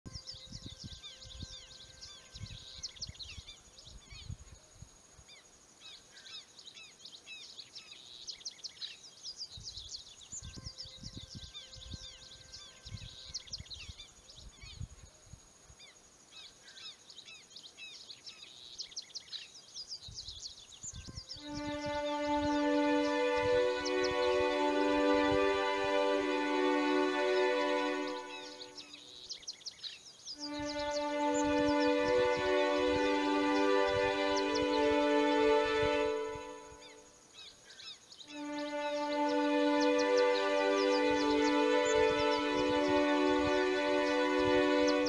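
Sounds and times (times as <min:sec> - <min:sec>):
small birds chirping: 0:00.1 - 0:04.5, 0:05.4 - 0:14.9, 0:15.8 - 0:45.0.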